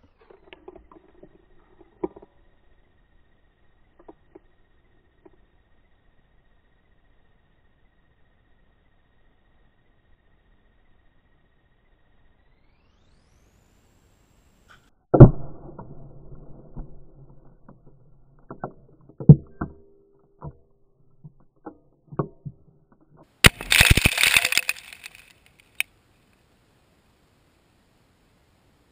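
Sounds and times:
debris crackling spray: 23.4 - 25.8
sharp thumps: 23.4 - 25.8.

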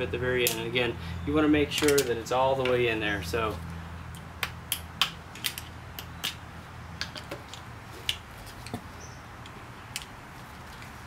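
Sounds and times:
metallic clicks of pliers and clip: 1.7 - 2.8.

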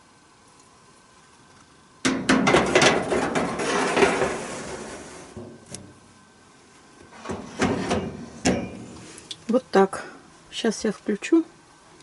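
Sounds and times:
metal tray scraping on oven rack: 2.4 - 5.6, 7.1 - 9.0.

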